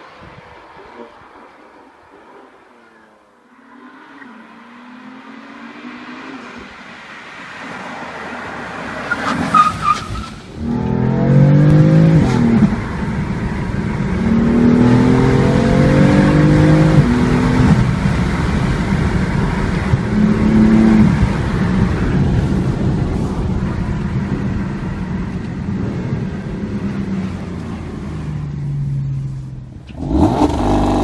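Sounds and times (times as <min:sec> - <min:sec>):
car passing fast: 0:00.0 - 0:31.0
car engine accelerating: 0:10.5 - 0:31.0.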